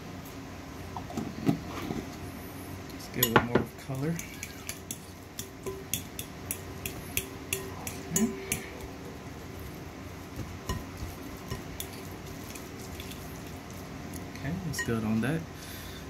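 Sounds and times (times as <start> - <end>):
utensil clinking against a bowl: 3.0 - 8.9, 10.6 - 13.6, 14.7 - 15.2.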